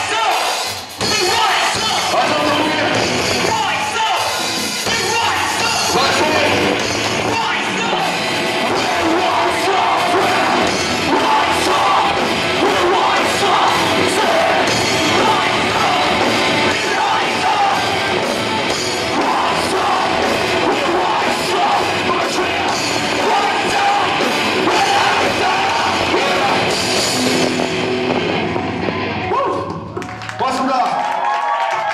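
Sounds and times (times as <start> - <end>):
drum kit and cymbals: 0.0 - 29.1
electric guitars: 1.8 - 30.3
lead singer vocals: 4.8 - 27.4
backing vocals: 4.8 - 27.7.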